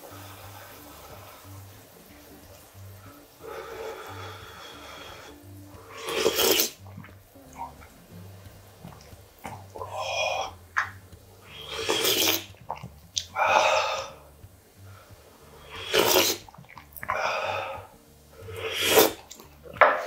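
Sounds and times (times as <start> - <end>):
sharp hissing breaths: 0.0 - 1.6, 3.0 - 6.8, 11.2 - 12.5, 13.3 - 16.5, 17.1 - 19.3
man slurping broth: 3.4 - 7.8, 11.5 - 14.2, 15.6 - 17.9, 18.5 - 19.4.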